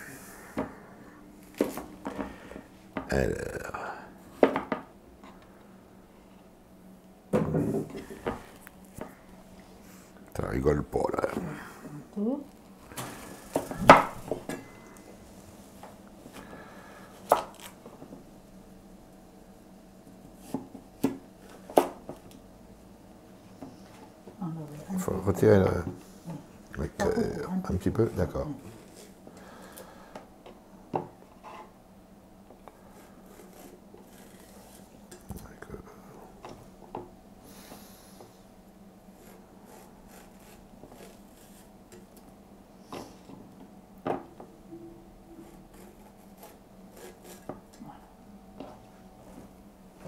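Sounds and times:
faint steady hum: 0.0s - 50.0s
cleaver scraping through vegetable: 32.8s - 35.0s, 39.2s - 41.7s, 45.4s - 47.5s.

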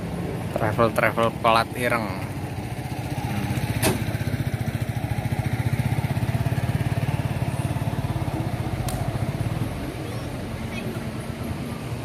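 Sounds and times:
motorcycle engine idling: 1.8s - 11.2s.

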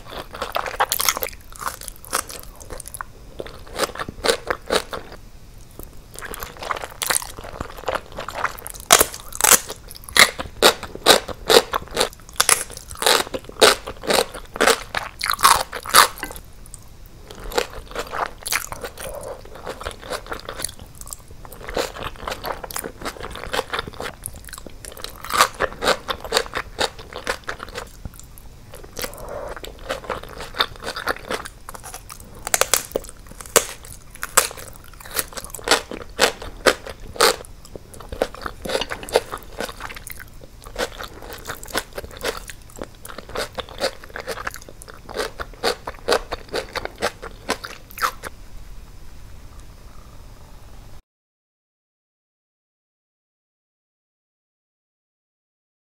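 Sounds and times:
close chewing with wet crunches: 17.3s - 48.3s.

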